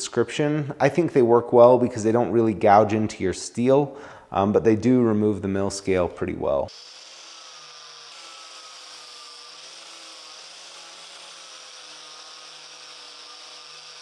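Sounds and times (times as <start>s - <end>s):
angle grinder whining on steel: 6.7s - 14.0s.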